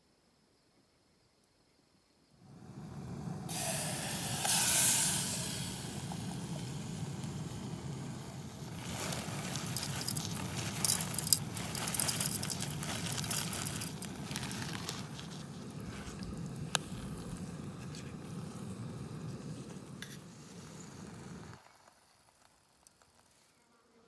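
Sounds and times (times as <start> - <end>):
gas burner rushing: 2.5 - 21.6
food sizzling in a pot: 2.9 - 21.7
dry noodles rustling: 8.6 - 17.8
plastic packet crinkling: 8.7 - 17.4.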